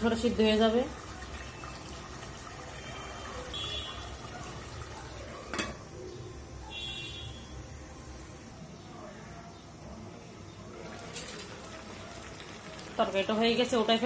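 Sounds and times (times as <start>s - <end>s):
pot simmering hiss: 0.0s - 5.6s, 10.6s - 14.0s.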